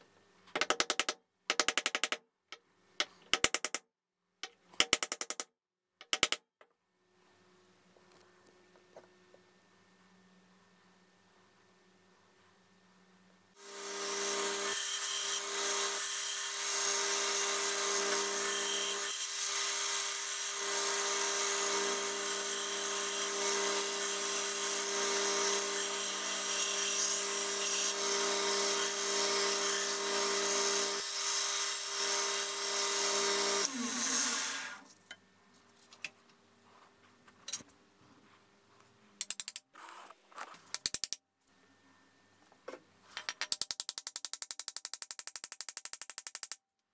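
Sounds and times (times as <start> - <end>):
grinder spinning down: 33.1 - 34.9.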